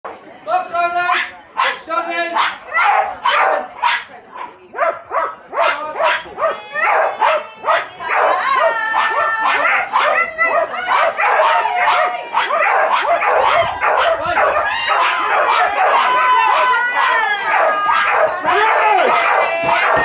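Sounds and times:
dogs barking: 1.1s - 20.0s
dogs yipping and whining: 5.2s - 20.0s.

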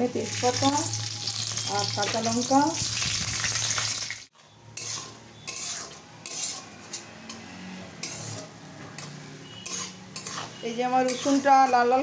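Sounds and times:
food sizzling in hot oil: 0.0s - 7.0s, 8.0s - 12.0s
spatula scraping metal pan: 4.7s - 12.0s.

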